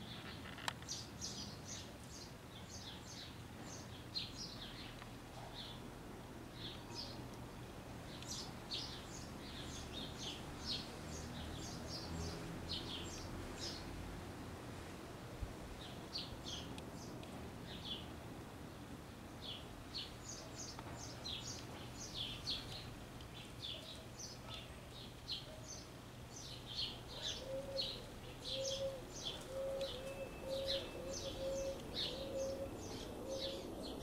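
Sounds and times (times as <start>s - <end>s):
small birds chirping: 0.0s - 14.4s, 15.7s - 34.0s.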